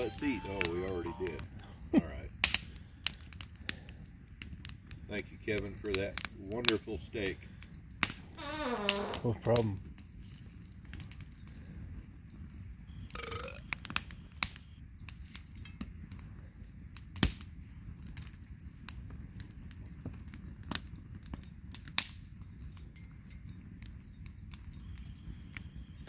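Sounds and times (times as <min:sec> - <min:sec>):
campfire crackling and popping: 0:00.0 - 0:26.0.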